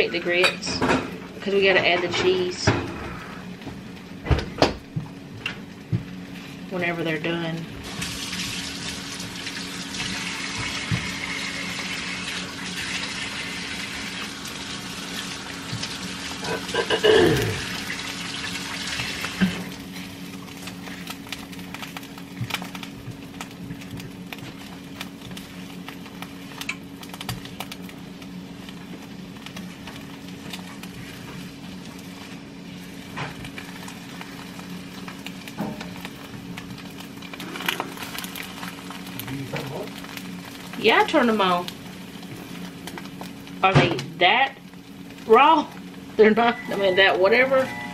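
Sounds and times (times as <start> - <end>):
faucet water running: 6.7 - 47.9.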